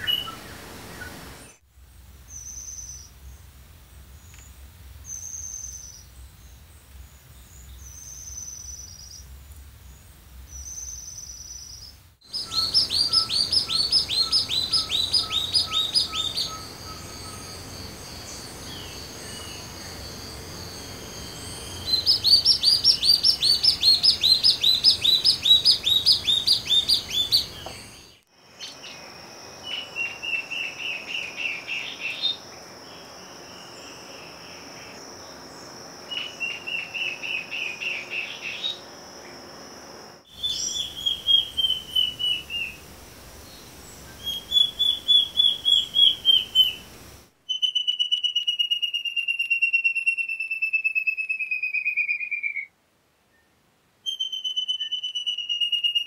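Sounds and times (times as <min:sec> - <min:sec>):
high thin bird song: 0:00.0 - 0:01.6, 0:02.2 - 0:38.9, 0:40.3 - 0:52.7, 0:53.3 - 0:56.0
lower bird notes: 0:00.0 - 0:01.6, 0:02.2 - 0:35.0, 0:40.4 - 0:52.7
high insect drone: 0:11.8 - 0:47.3.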